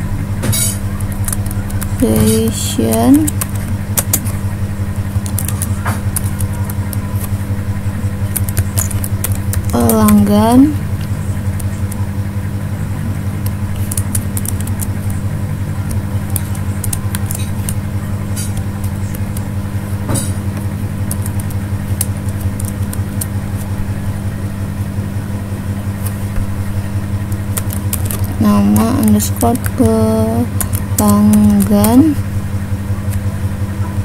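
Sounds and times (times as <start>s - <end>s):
low electrical hum: 0.0s - 34.0s
keyboard key clicks: 3.2s - 4.4s, 5.2s - 7.4s, 13.4s - 15.2s, 20.1s - 23.7s.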